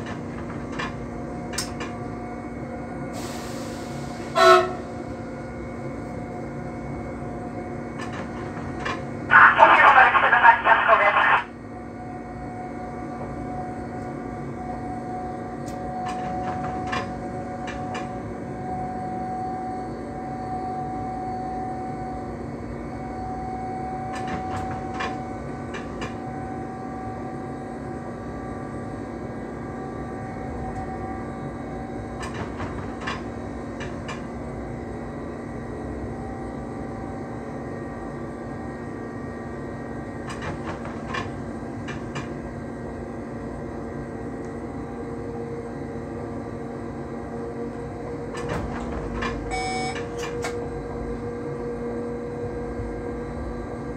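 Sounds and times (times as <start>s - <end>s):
electric train rumble and hum: 0.0s - 53.9s
faint whine: 9.3s - 11.6s.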